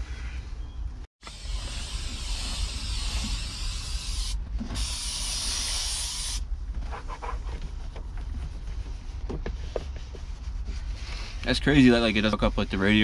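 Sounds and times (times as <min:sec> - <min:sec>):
aerosol spray can hissing: 0:01.3 - 0:06.4
towel rubbing over dashboard: 0:06.8 - 0:13.0.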